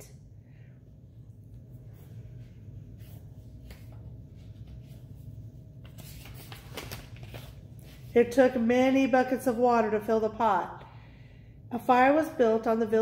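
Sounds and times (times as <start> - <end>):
steady low hum: 0.0 - 13.0
paper rustling: 5.8 - 8.1.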